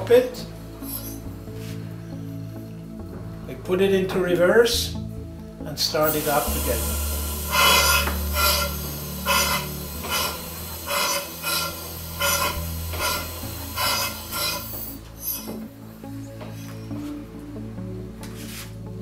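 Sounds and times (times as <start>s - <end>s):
steam engine exhaust puffing: 6.0s - 15.6s.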